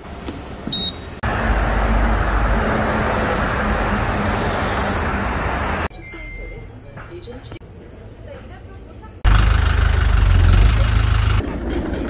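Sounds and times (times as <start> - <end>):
vehicles passing: 0.0 - 5.9, 9.2 - 12.0.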